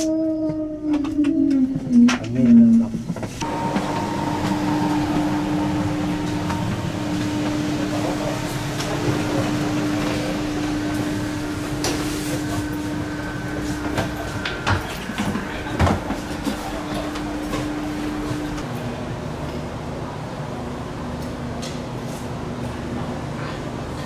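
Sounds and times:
air conditioning hum: 0:00.8 - 0:24.0.

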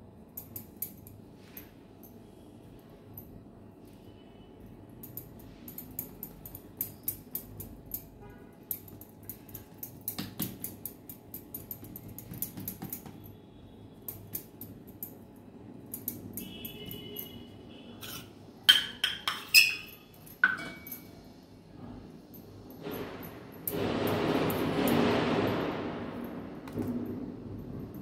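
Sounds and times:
metal clinks: 0:05.0 - 0:28.0
kitchen utensils clicking and scraping: 0:15.9 - 0:21.2.

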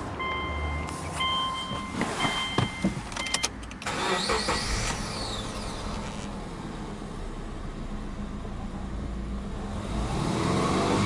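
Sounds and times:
dashboard warning chime: 0:00.2 - 0:03.6
car engine starting and revving: 0:03.7 - 0:11.0.

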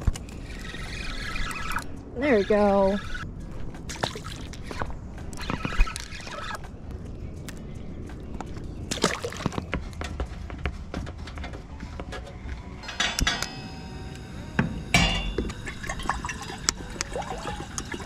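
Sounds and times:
clicks and metallic clinks: 0:12.8 - 0:13.7
water pouring into metal saucepan: 0:15.6 - 0:18.0.

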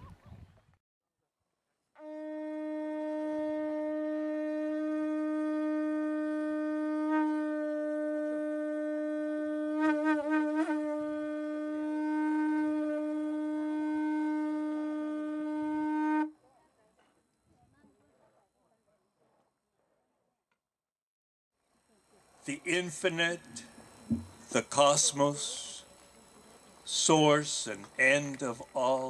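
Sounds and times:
conch shell trumpet note: 0:02.0 - 0:16.4.

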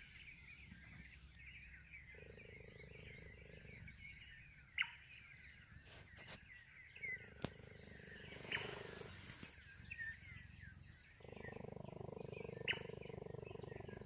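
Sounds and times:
birds chirping: 0:00.0 - 0:14.0
cheetah purring: 0:02.1 - 0:04.2, 0:07.1 - 0:09.5, 0:11.1 - 0:14.0.

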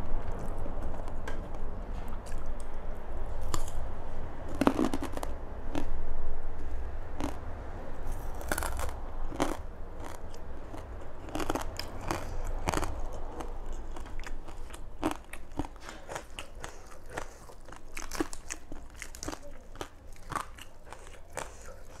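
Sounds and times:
chewing crunchy food: 0:00.2 - 0:03.8, 0:04.5 - 0:06.0, 0:07.2 - 0:07.4, 0:08.1 - 0:22.0.

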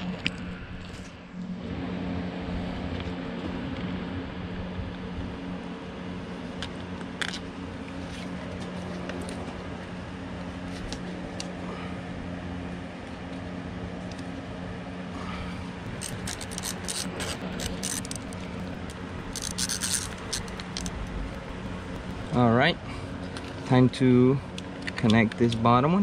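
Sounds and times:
steady low hum: 0:00.0 - 0:26.0
socket ratchet clicking: 0:15.9 - 0:22.3.

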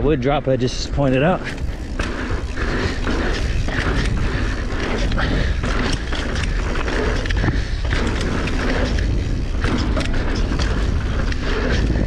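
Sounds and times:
bike tyres rolling on dirt: 0:00.0 - 0:12.0
steady low rumble: 0:00.0 - 0:12.0
bike clattering over bumps: 0:00.6 - 0:12.0.

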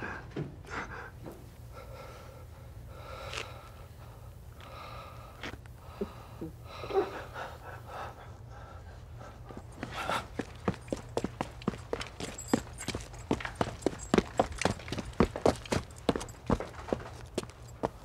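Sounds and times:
low steady hum: 0:00.0 - 0:18.0
man breathing heavily: 0:00.0 - 0:18.0.

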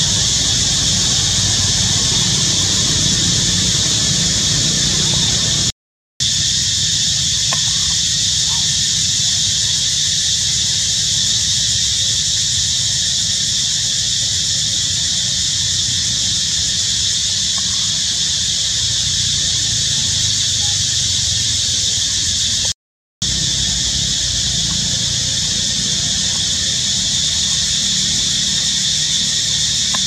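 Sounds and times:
insects droning: 0:00.0 - 0:30.0
low steady rumble: 0:23.2 - 0:30.0.

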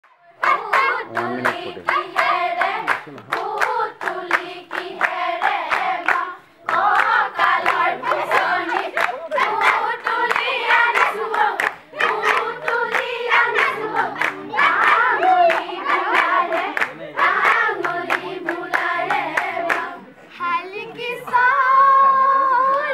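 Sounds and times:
women singing in unison: 0:00.1 - 0:22.9
rhythmic hand claps: 0:00.4 - 0:20.0.

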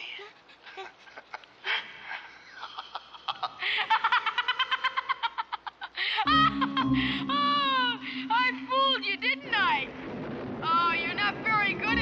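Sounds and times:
boy giggling: 0:00.2 - 0:07.9
breathy sound: 0:06.0 - 0:08.3.

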